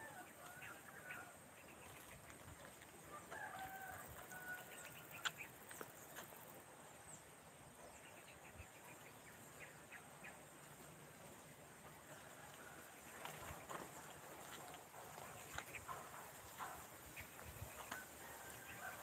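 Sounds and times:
rooster crowing: 3.1 - 5.0, 17.9 - 19.0.

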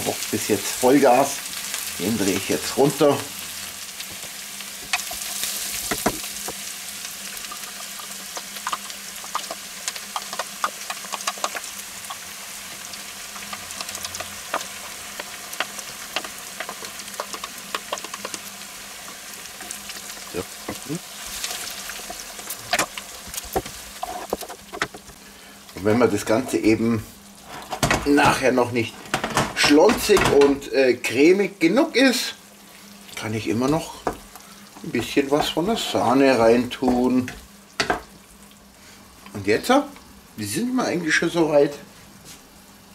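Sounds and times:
faint steady hum: 0.0 - 42.9
onions sizzling in butter: 0.0 - 42.9.

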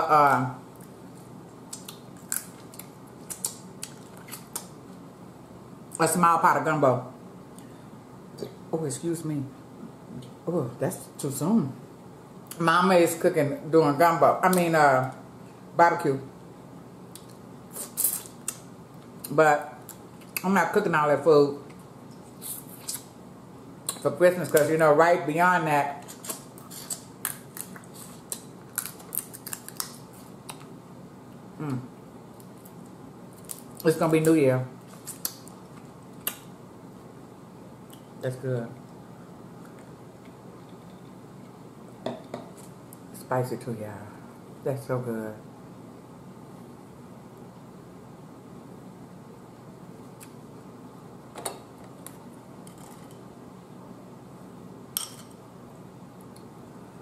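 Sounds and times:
crab shell cracking: 26.2 - 30.7.

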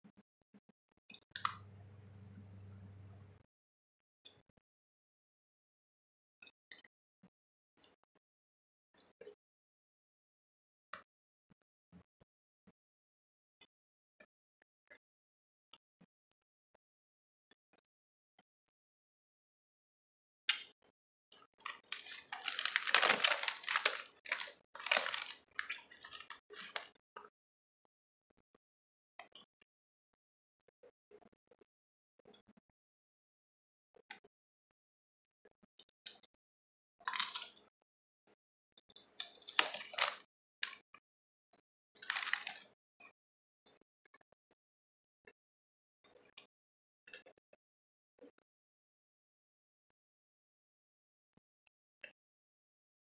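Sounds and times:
plastic chip bag crinkling: 21.6 - 26.9, 37.1 - 37.5, 39.1 - 40.2, 42.0 - 42.7.

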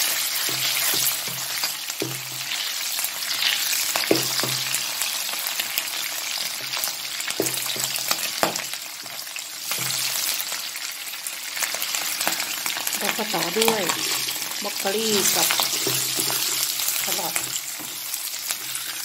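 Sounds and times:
meat sizzling in hot oil: 0.0 - 19.0
spatula knocking and scraping pan: 0.3 - 2.6, 4.0 - 4.8, 7.3 - 8.7, 15.0 - 19.0.

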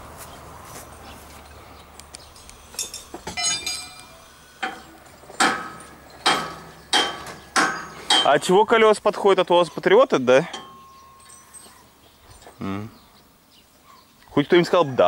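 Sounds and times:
metal clinks: 2.7 - 8.4, 9.7 - 12.6.

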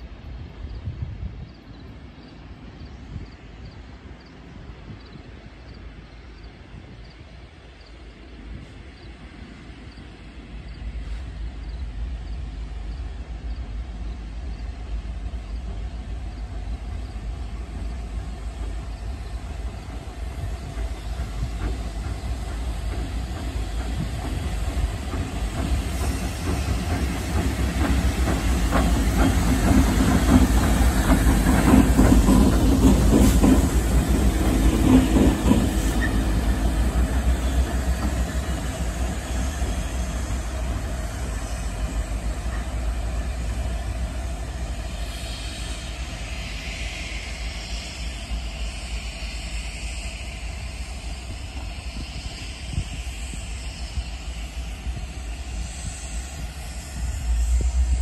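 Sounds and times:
diesel locomotive engine rumble: 0.0 - 58.0.

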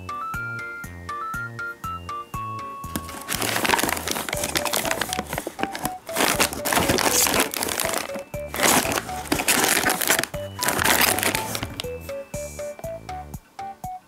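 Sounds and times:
background music: 0.0 - 14.0
plastic bags crinkling: 2.9 - 12.1.

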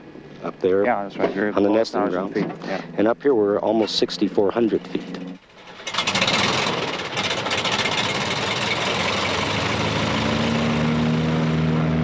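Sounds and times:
low steady hum: 0.0 - 5.6
airboat engine roaring: 2.3 - 12.0.

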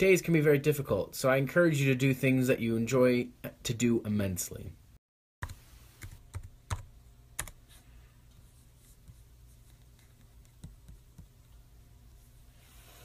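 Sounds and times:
keyboard clicks: 5.4 - 7.6.

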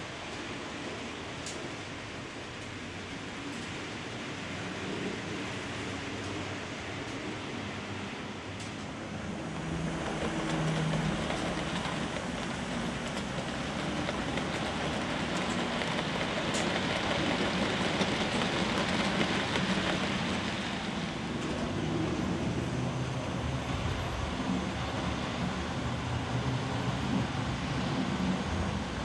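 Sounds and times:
model train wheels rolling on rails: 8.6 - 21.8.

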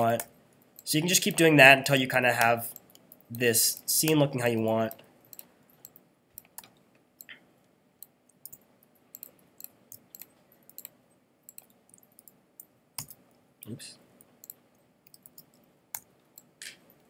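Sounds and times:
computer mouse clicking: 2.3 - 7.4, 8.0 - 13.4, 14.2 - 17.0.

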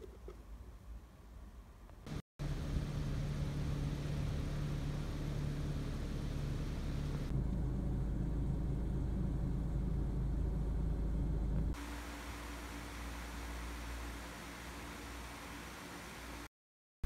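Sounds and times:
engine rumbling: 2.1 - 11.9.

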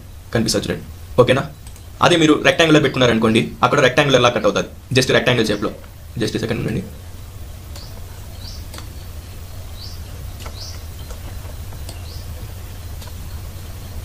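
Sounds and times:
low hum and hiss: 0.0 - 14.0
faint clicks: 1.6 - 1.9, 7.7 - 8.0, 8.6 - 8.9.

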